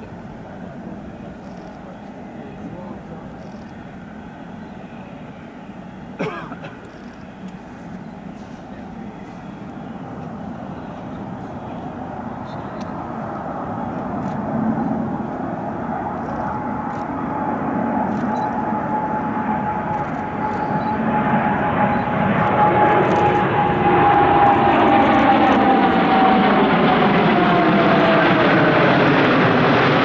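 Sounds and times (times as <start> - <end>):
jet airliner flying past low: 0.0 - 30.0.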